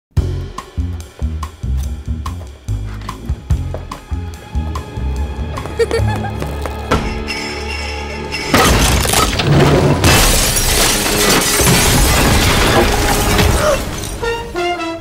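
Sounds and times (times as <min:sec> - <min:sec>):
music: 0:00.1 - 0:15.0
glass crashing and shattering: 0:08.5 - 0:14.5.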